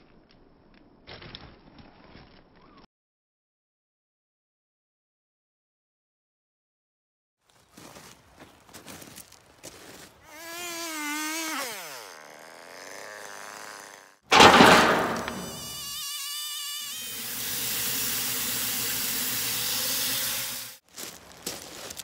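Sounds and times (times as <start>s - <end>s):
band saw cutting log: 10.3s - 20.8s
loud burst of noise: 14.3s - 15.8s.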